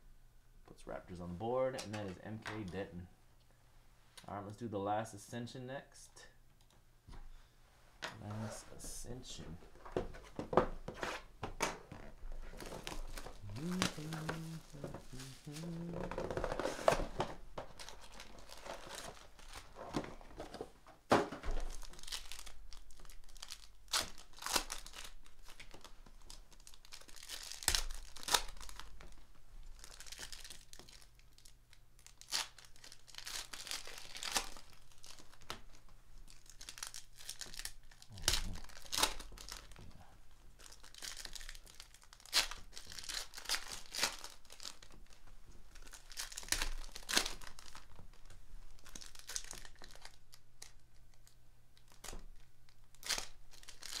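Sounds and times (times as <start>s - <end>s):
foil wrappers tearing and crinkling: 11.9s - 20.6s, 21.4s - 39.8s, 40.6s - 54.0s.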